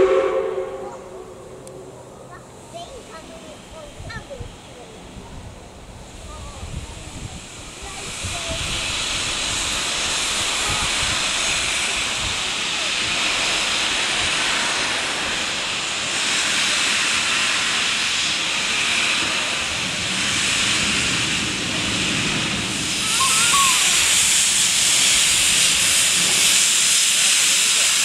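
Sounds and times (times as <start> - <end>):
steam hissing from locomotive: 0.0 - 28.0.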